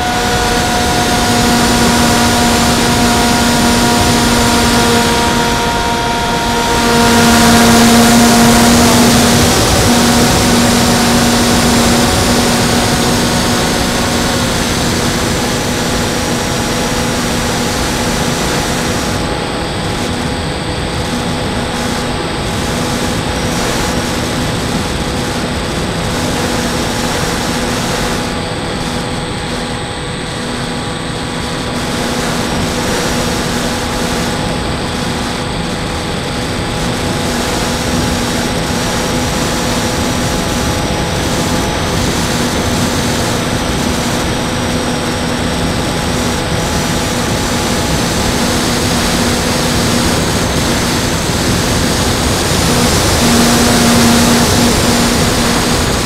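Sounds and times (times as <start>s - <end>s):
airflow rushing over microphone: 0.0s - 56.0s
electric motor and propeller: 0.0s - 56.0s
thin high whine: 0.0s - 56.0s.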